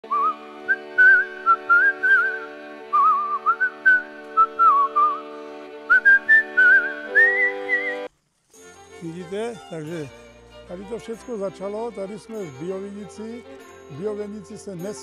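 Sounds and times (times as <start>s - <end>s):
whistled tune: 0.0s - 8.1s
held chords: 0.2s - 15.0s.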